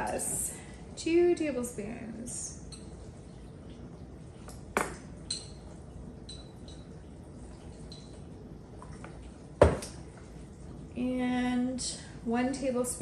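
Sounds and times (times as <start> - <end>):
metal spoon clinking glass bowl: 5.2 - 6.9.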